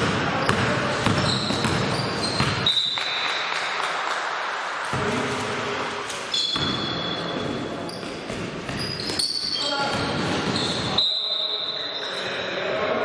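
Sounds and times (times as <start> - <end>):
basketball bouncing: 0.0 - 3.2, 6.5 - 10.9
shoes squeaking on gym court: 0.4 - 3.8, 4.9 - 12.5.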